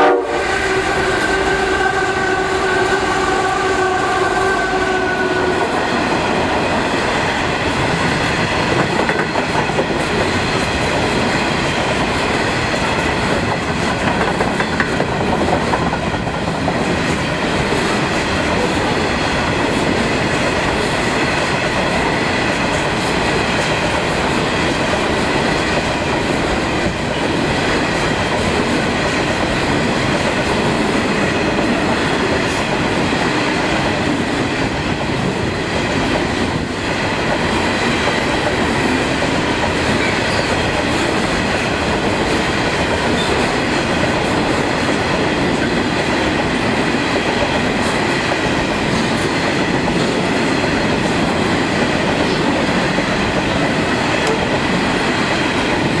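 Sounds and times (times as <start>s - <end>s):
locomotive horn: 0.0s - 6.0s
train wagons rumbling and clattering: 0.0s - 56.0s.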